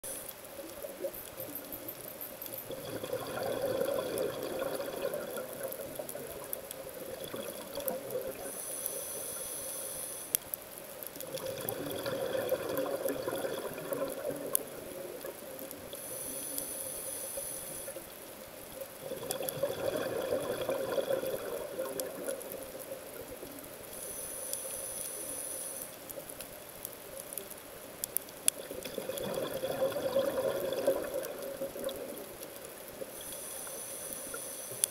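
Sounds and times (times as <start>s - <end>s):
faint clicks: 0.0s - 34.9s
bubbling exhaust: 2.7s - 5.6s, 11.3s - 14.6s, 19.0s - 22.3s
diver breathing through regulator: 8.5s - 10.4s.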